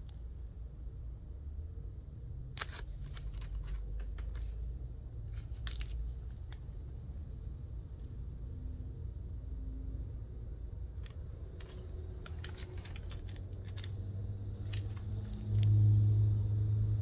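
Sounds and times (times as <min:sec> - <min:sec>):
plastic sleeves crinkling: 0:02.6 - 0:04.6, 0:05.2 - 0:06.7, 0:11.0 - 0:15.8.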